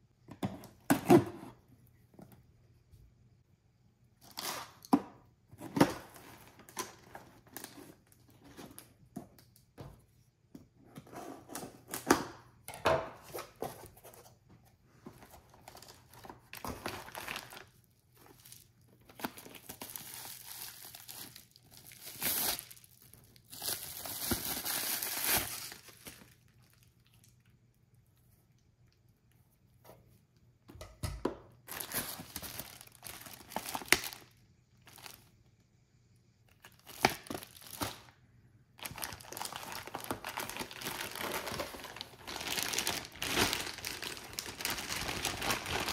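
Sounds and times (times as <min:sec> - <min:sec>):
plastic packaging crinkling: 0:15.2 - 0:27.5, 0:31.7 - 0:35.3, 0:36.5 - 0:38.2, 0:38.8 - 0:45.9.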